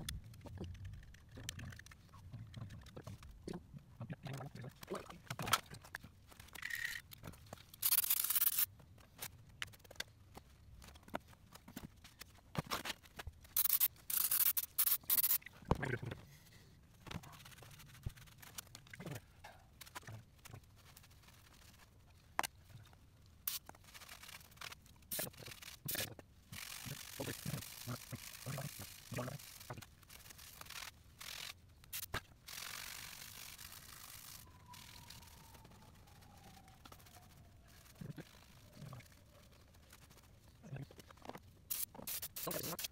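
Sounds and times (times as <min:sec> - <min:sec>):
gloves rustling and rubbing: 0:16.2 - 0:42.9.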